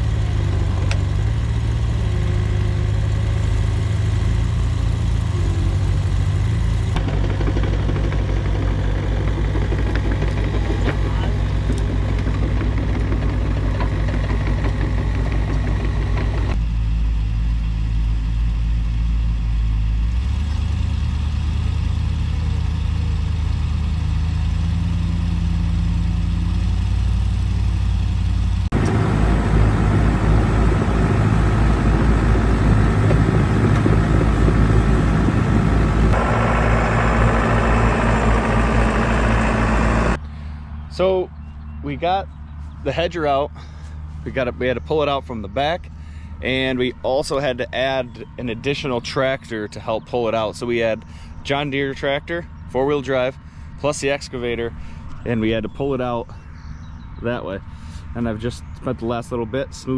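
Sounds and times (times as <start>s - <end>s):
diesel engines running: 0.0s - 59.9s.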